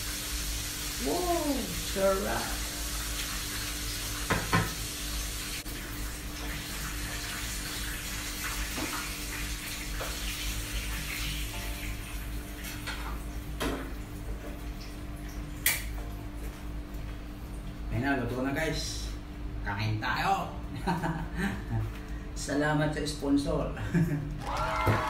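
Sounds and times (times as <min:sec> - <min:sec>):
oil sizzling in a frying pan: 0:00.0 - 0:15.9
utensil knocking on a pan: 0:04.3 - 0:04.8.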